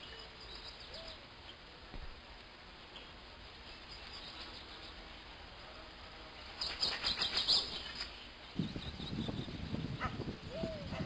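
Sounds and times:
wind rumbling on microphone: 0:08.5 - 0:11.0.

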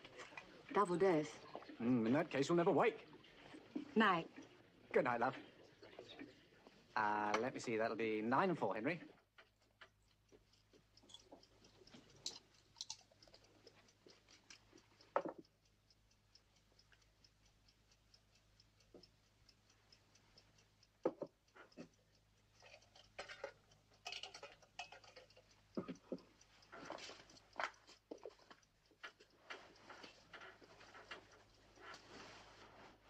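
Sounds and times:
clock ticking rapidly: 0:06.9 - 0:33.0.

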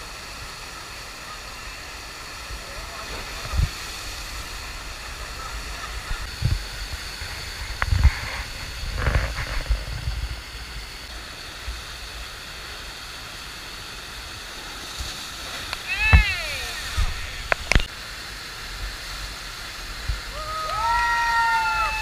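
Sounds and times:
rushing water on slope: 0:00.0 - 0:22.0.

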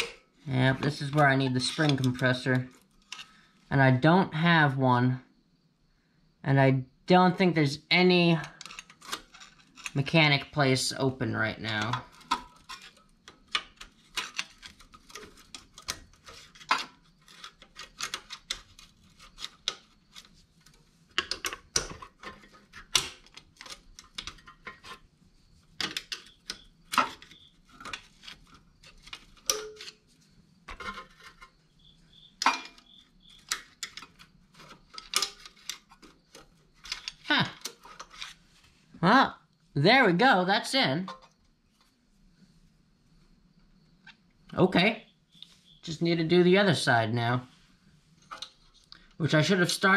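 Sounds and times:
screwdrivers clinking on metal: 0:00.9 - 0:03.3, 0:08.3 - 0:10.1, 0:11.5 - 0:20.4, 0:25.8 - 0:30.0, 0:32.4 - 0:38.3.

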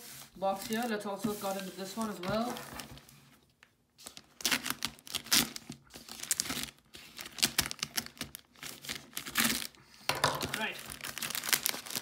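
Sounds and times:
cardboard box ripping and crinkling: 0:04.1 - 0:09.8, 0:10.5 - 0:12.0.

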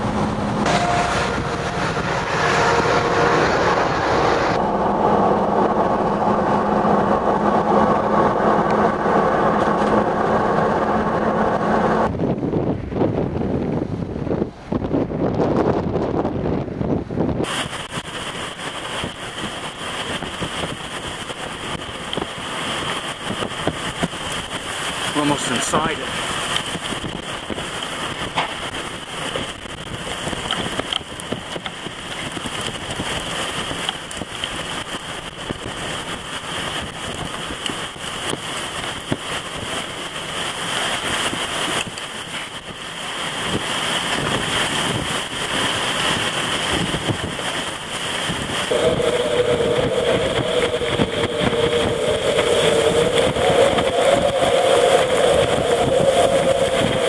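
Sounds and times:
wavering whine: 0:00.0 - 0:12.1, 0:48.6 - 0:57.0
blowing rain: 0:00.0 - 0:57.0
tornado winds rushing: 0:00.0 - 0:57.0.

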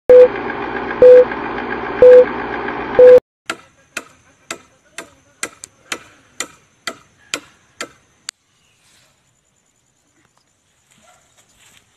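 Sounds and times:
short beeps: 0:01.0 - 0:01.3, 0:02.0 - 0:02.3, 0:03.0 - 0:03.2.

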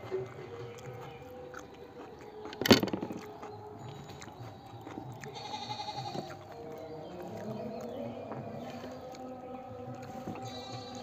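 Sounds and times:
goat bleating: 0:05.2 - 0:06.5.

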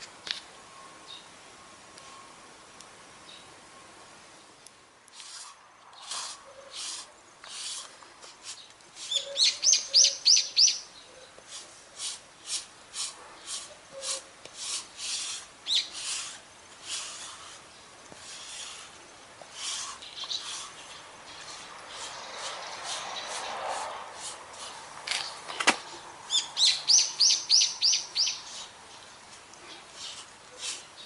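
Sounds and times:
lint roller rubbing over fur: 0:05.1 - 0:09.2, 0:11.4 - 0:24.9, 0:30.0 - 0:30.9
bird chirping rising notes: 0:09.1 - 0:11.2, 0:26.3 - 0:28.7.

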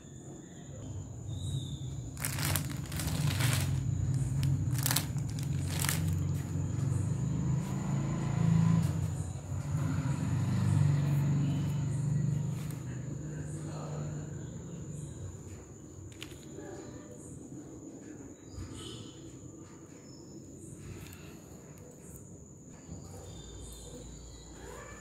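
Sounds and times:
cloth rustling and crinkling: 0:02.1 - 0:06.5.

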